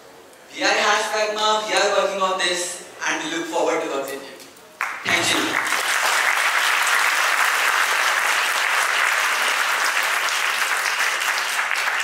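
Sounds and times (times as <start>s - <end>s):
audience applauding: 4.8s - 12.0s.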